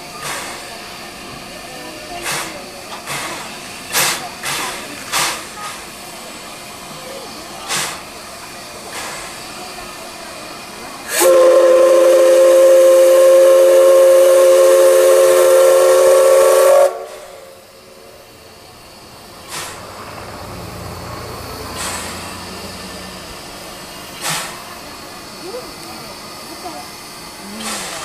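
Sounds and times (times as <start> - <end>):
steam hissing: 0.0 - 28.0
steam whistle chord: 11.1 - 17.6.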